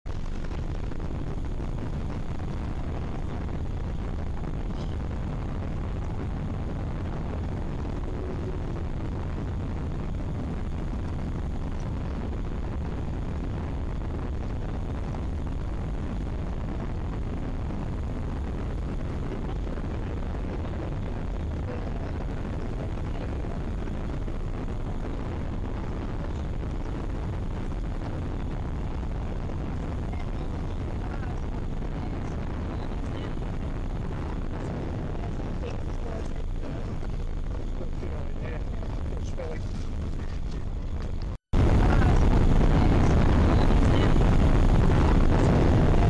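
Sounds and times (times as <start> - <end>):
low rumble of airplane cabin: 0.1 - 46.0.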